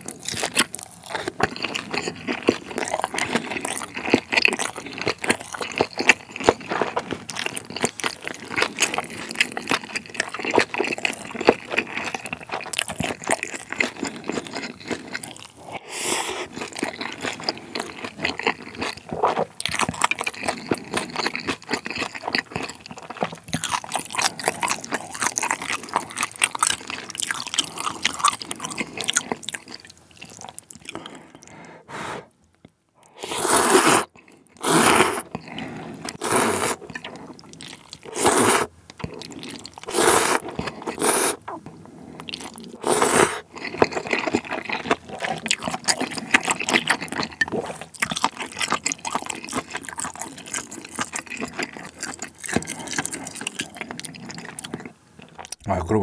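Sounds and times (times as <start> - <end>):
wet chewing: 0.0 - 55.6
slurping noodles: 0.4 - 19.5, 33.0 - 55.4.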